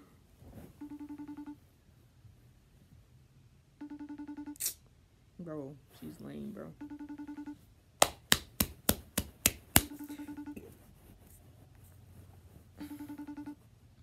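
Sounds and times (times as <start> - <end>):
phone ringing tone: 0.8 - 1.6, 3.8 - 4.6, 6.7 - 7.6, 9.9 - 10.7, 12.8 - 13.6
sharp hand strikes: 8.0 - 10.0.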